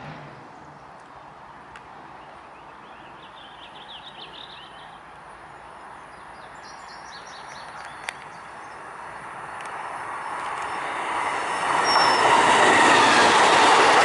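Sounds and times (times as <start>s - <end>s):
train rumbling: 0.0s - 0.9s, 7.4s - 14.0s
songbird chirping: 2.1s - 12.5s.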